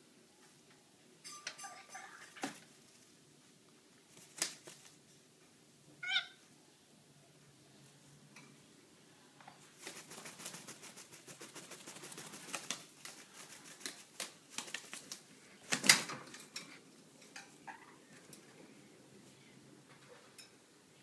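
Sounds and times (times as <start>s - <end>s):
parrot flapping wings: 4.1s - 5.0s, 9.8s - 16.5s.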